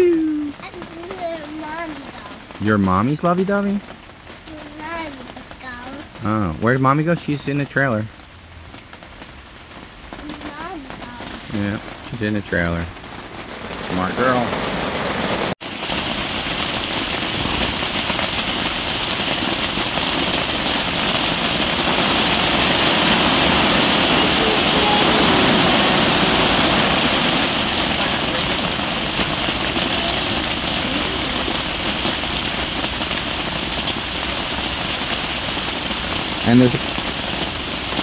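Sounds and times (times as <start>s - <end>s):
rain on fabric shelter: 0.0s - 38.0s.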